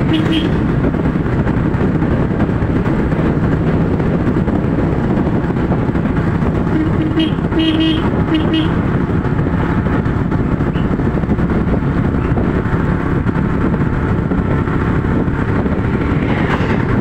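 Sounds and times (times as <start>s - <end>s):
car horn toot: 0.0s - 0.6s, 6.6s - 8.8s
vehicle engine rumble: 0.0s - 17.0s
wind noise: 0.0s - 17.0s.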